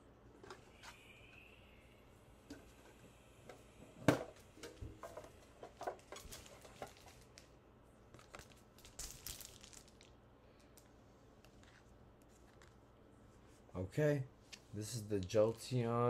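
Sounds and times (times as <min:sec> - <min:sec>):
plastic crinkling and tearing: 0:08.1 - 0:10.2.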